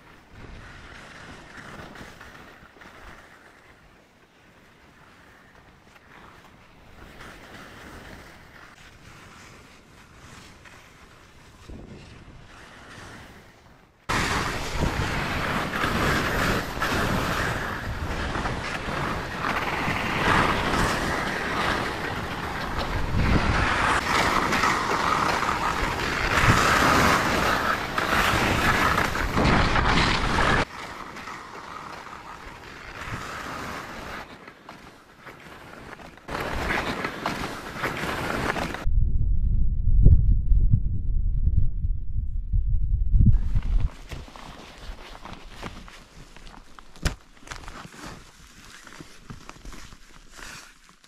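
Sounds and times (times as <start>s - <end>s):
wind on microphone: 14.1s - 30.7s, 38.2s - 44.3s.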